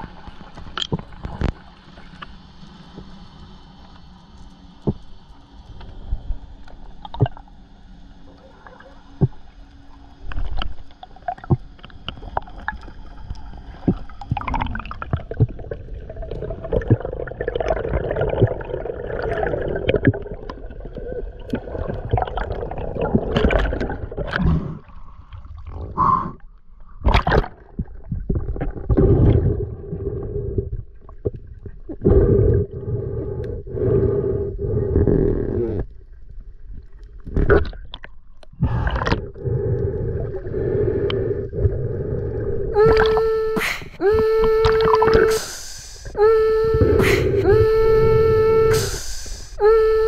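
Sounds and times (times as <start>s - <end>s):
underwater clicks and knocks: 0.6s - 1.6s.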